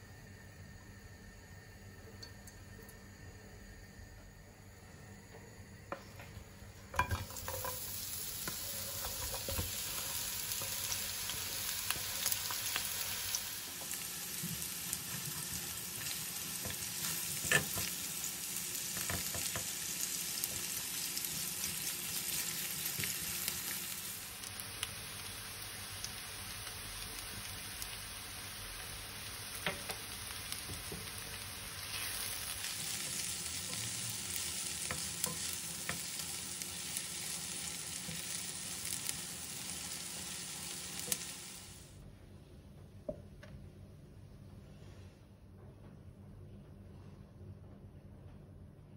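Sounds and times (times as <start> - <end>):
onions sizzling in a frying pan: 6.8 - 42.0
onions hitting hot oil: 6.9 - 41.7.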